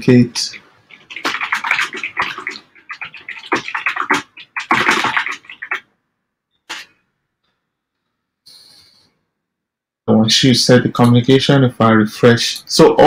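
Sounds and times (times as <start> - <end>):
computer keyboard typing: 0.9 - 5.8.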